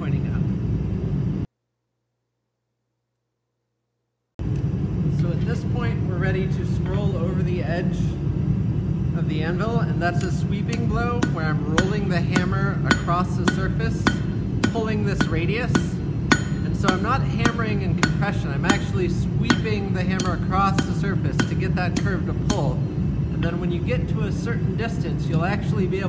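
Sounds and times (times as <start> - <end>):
hammer striking steel on anvil: 10.1 - 23.0.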